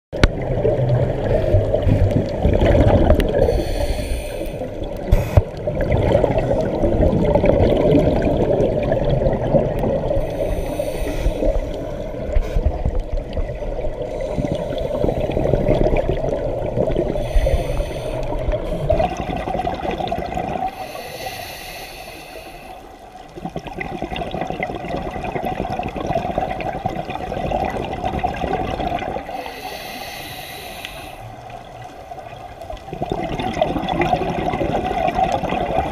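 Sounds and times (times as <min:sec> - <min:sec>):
bubbling exhaled air: 0:00.2 - 0:22.8, 0:23.4 - 0:31.6, 0:32.8 - 0:35.9
regulator hiss of inhaled air: 0:03.4 - 0:05.4, 0:10.2 - 0:12.8, 0:17.2 - 0:19.0, 0:20.7 - 0:22.9, 0:29.3 - 0:31.4.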